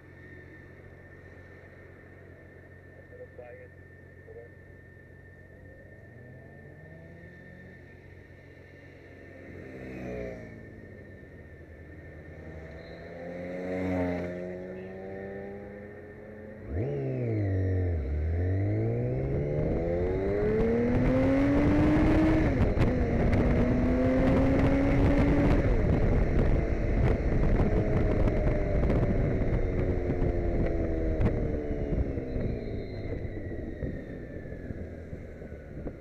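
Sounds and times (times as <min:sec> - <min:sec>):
wind and road rush: 0:03.8 - 0:36.0
motorcycle engine accelerating: 0:04.8 - 0:36.0.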